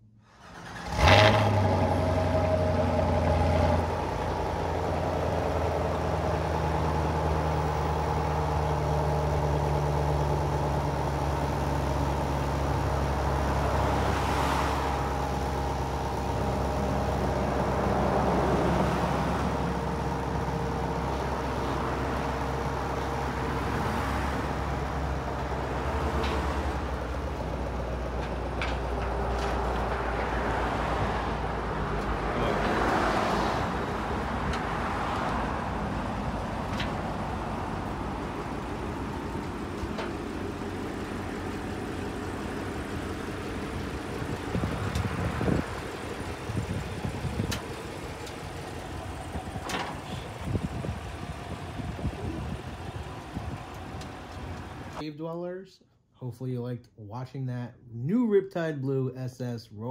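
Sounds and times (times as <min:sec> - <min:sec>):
truck engine running: 0:00.6 - 0:32.9, 0:33.6 - 0:55.0.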